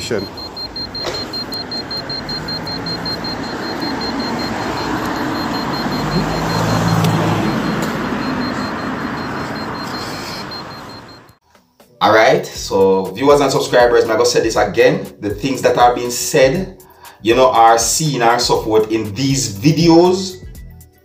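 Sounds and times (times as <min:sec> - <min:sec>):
vehicle passing: 0:00.0 - 0:11.3
rapid high alarm beeping: 0:00.0 - 0:11.4.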